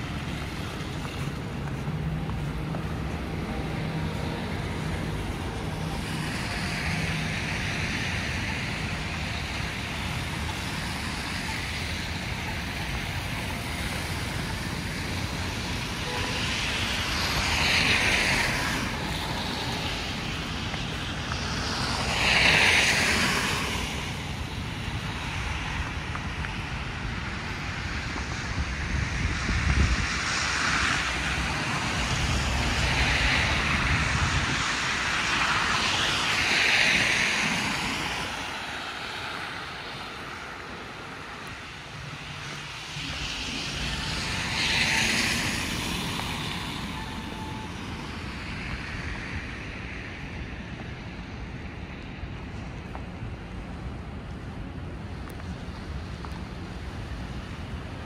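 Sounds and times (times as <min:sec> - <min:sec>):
cars passing: 0:00.0 - 0:58.0
wind buffeting microphone: 0:23.9 - 0:46.6.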